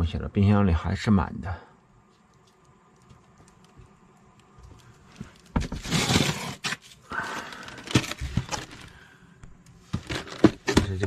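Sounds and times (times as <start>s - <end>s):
plastic wrapping rustling: 4.6s - 9.0s.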